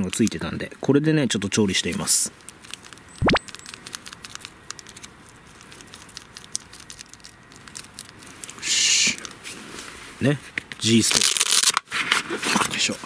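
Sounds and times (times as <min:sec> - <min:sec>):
foil packet rustling: 0:01.8 - 0:09.4, 0:10.8 - 0:11.8.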